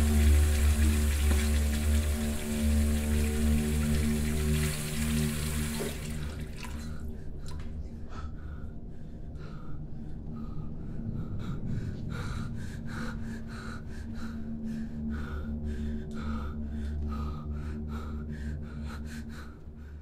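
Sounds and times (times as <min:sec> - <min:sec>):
low steady drone: 0:00.0 - 0:20.0
man breathing heavily: 0:06.8 - 0:20.0.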